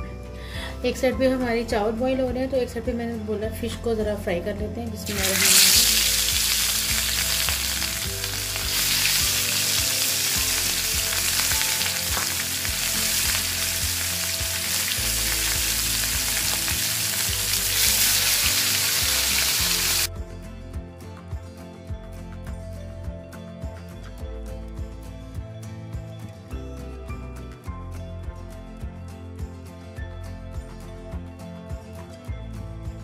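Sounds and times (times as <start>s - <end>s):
soft background music: 0.0s - 33.0s
fish sizzling in oil: 5.1s - 20.1s.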